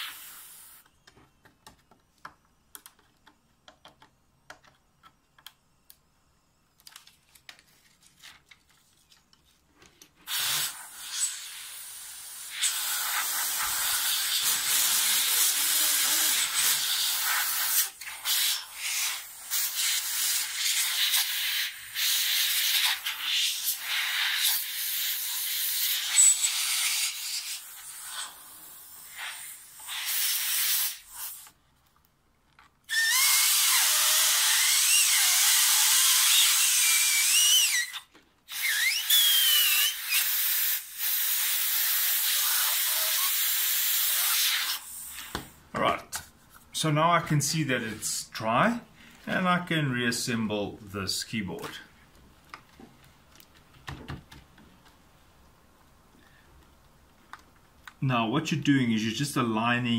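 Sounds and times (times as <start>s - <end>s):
compressed air hissing: 0.0s - 0.9s, 10.2s - 31.6s, 32.9s - 45.5s.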